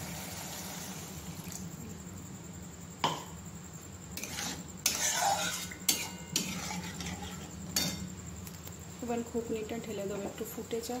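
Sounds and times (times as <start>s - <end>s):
spatula scraping metal pan: 4.2s - 8.0s.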